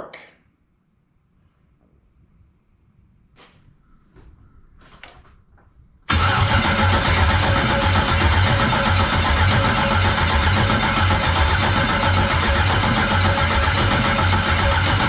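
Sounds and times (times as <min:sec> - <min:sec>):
faint clicks and rustles: 0:03.3 - 0:05.9
starter cranking engine: 0:06.1 - 0:15.0.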